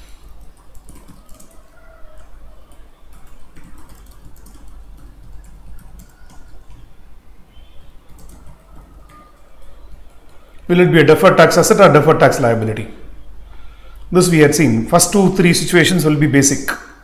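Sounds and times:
keyboard typing: 0.0s - 10.7s.

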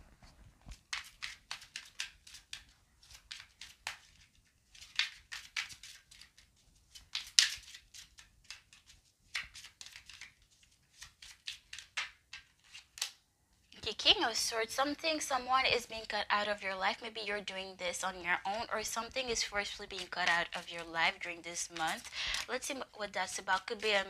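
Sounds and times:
cards being shuffled: 0.2s - 13.2s, 19.6s - 24.0s.

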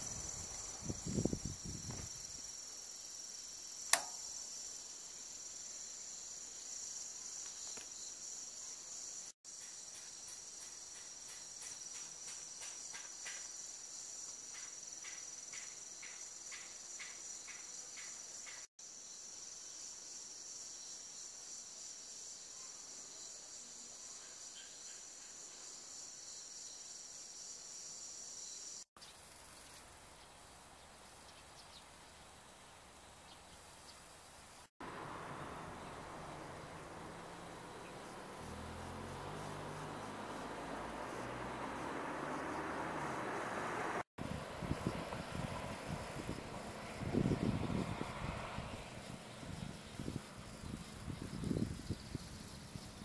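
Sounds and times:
crickets and insects chorus: 0.0s - 53.0s
insect chirping in pulses: 0.0s - 53.0s
sharp click: 3.9s - 4.3s.

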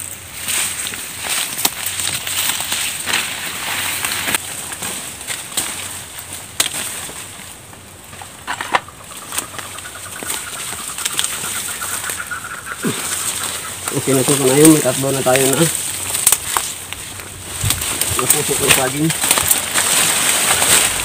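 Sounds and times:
dry leaves rustling: 0.0s - 21.0s
stalks snapping: 0.5s - 21.0s.

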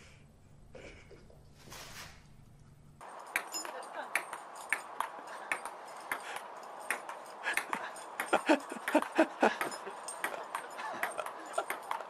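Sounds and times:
table tennis ball clicking: 4.1s - 12.0s.

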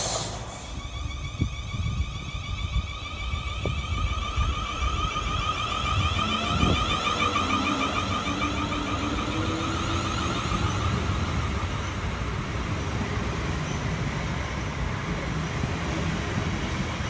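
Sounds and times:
train traction motor whine: 0.0s - 17.0s
wheels rumbling on rails: 0.0s - 17.0s.

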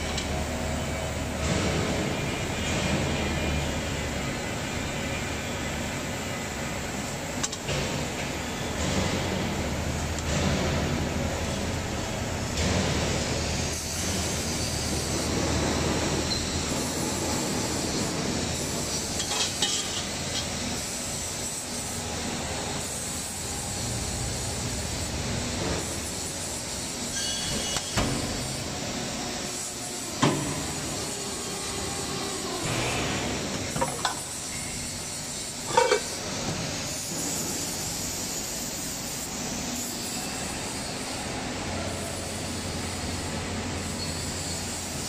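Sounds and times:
hydraulic press humming and hissing: 0.0s - 45.0s.

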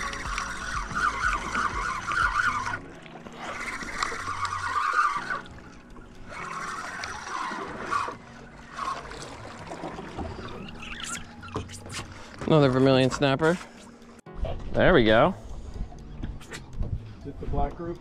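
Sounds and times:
fishing reel gears whirring: 0.0s - 12.2s
water lapping around boat: 0.0s - 18.0s.

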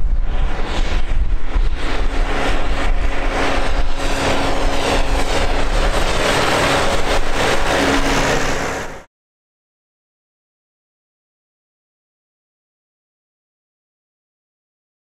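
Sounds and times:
tractor diesel engine running: 2.0s - 9.0s.

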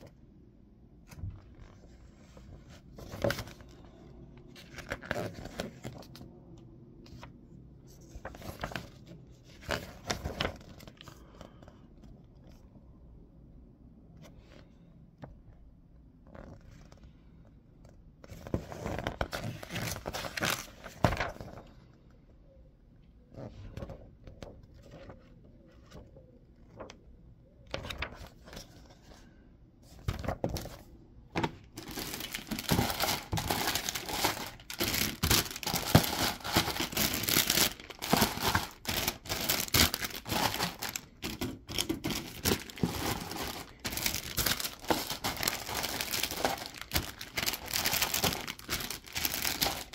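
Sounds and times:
paper rustling: 7.9s - 11.6s, 18.2s - 21.8s, 27.7s - 49.9s
plastic bags crinkling: 31.4s - 49.9s.

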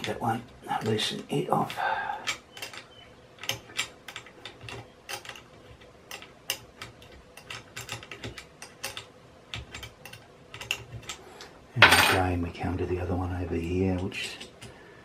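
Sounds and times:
allen key clicking in bolt: 2.2s - 2.8s, 3.4s - 5.4s.

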